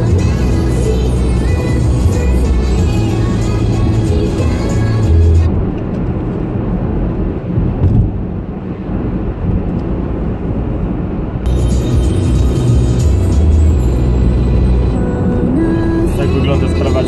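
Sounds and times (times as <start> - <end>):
music in car: 0.0 - 8.2, 11.4 - 17.0
tyre and engine rumble: 0.0 - 17.0.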